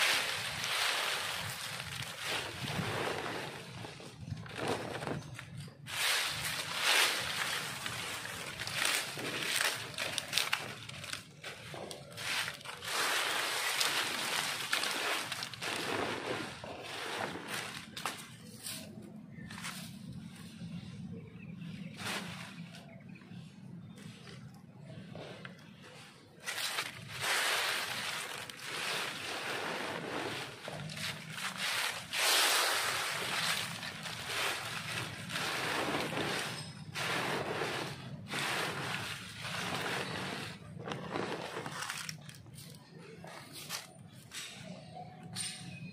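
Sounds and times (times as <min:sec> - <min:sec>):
dry leaves rustling and crunching: 0:00.0 - 0:21.2, 0:21.8 - 0:23.3, 0:23.9 - 0:45.0.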